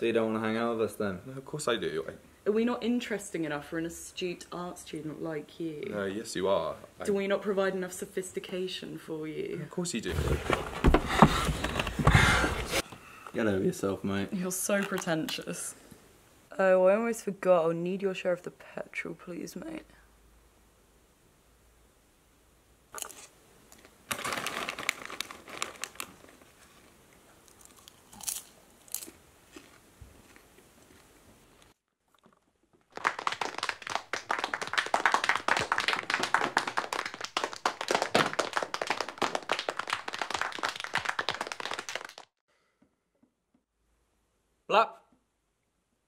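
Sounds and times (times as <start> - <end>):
audience applauding: 32.9 - 42.3.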